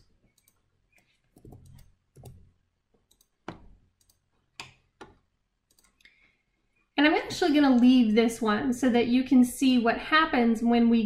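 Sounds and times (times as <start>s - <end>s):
computer mouse clicks: 0.0s - 6.2s.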